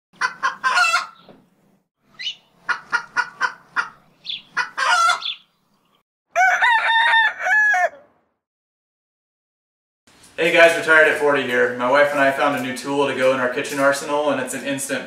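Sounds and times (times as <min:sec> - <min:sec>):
chickens clucking: 0:00.2 - 0:01.4, 0:02.2 - 0:05.5
rooster crowing: 0:06.3 - 0:08.3.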